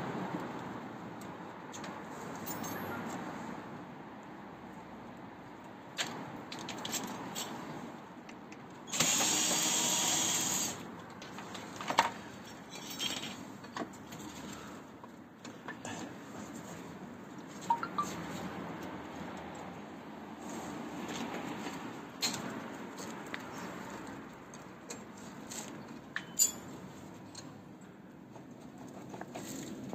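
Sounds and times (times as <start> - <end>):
metallic clinks and knocks of tools: 2.4 - 3.2, 12.0 - 14.4, 24.9 - 27.5
cordless drill running: 8.9 - 10.8.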